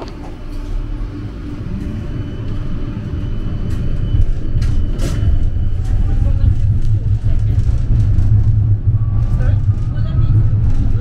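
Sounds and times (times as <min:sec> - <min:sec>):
tram low rumble: 0:00.0 - 0:11.0
sharp clicks and rattles: 0:05.9 - 0:11.0.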